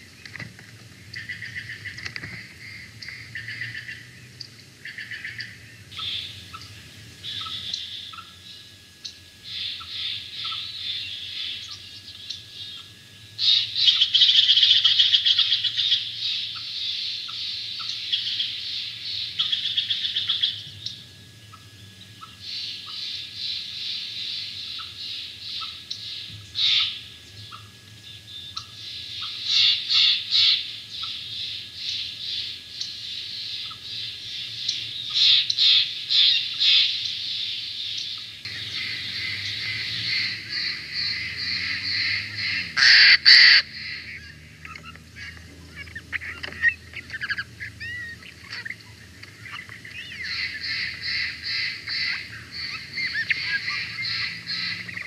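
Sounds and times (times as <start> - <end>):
jay calling harsh notes: 42.0 - 44.0.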